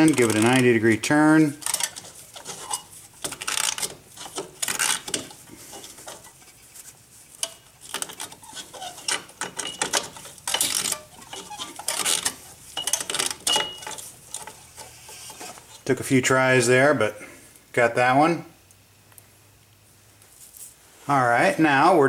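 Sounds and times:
metal clinking and scraping: 0.0s - 16.0s.

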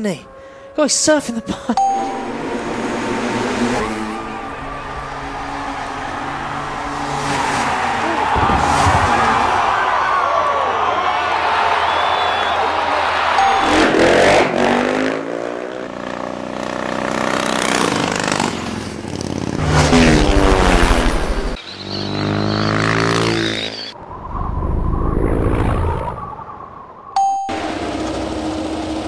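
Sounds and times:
motocross engines revving: 0.0s - 10.0s, 11.8s - 24.0s.

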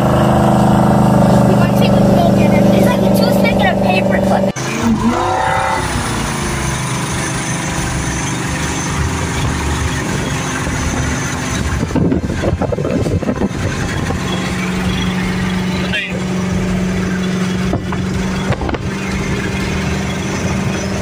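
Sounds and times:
jet boat engine running: 0.0s - 21.0s
wake and wind rush: 9.2s - 21.0s.

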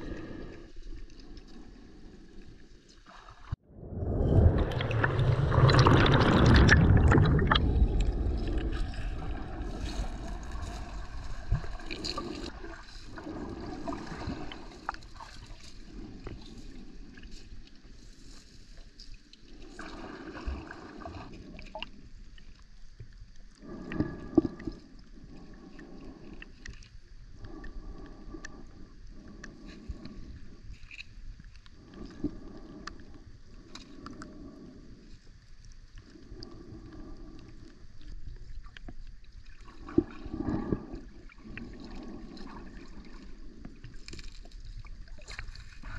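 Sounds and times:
muffled underwater water noise: 0.0s - 45.9s
water gushing from a stone spout: 4.2s - 8.8s.

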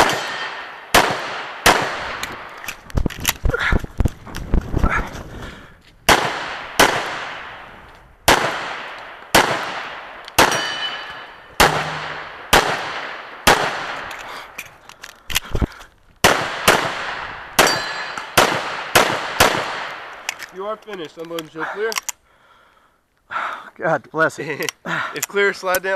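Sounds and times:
pistol shots with echo: 0.0s - 2.4s, 6.1s - 7.6s, 8.3s - 14.1s, 16.2s - 20.1s.

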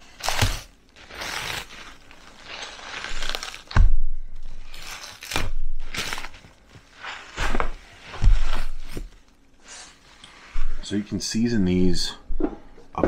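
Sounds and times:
plastic wrapping crinkling: 0.0s - 10.2s.

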